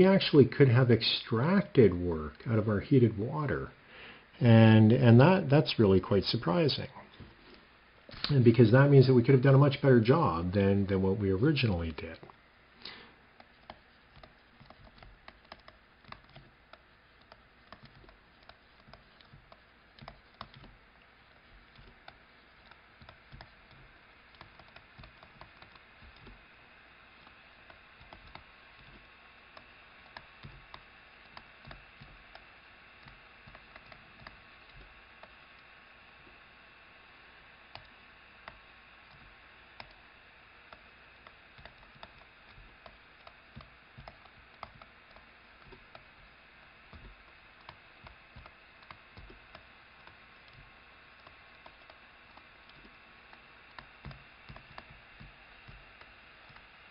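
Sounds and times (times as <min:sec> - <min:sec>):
low steady hiss: 0:00.0 - 0:56.9
stylus tapping on tablet screen: 0:12.2 - 0:26.4, 0:27.2 - 0:35.6, 0:40.7 - 0:56.9.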